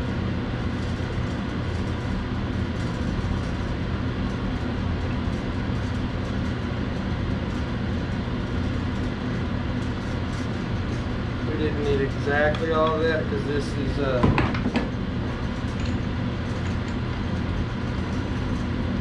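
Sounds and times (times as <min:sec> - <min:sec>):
low machine drone: 0:00.0 - 0:19.0.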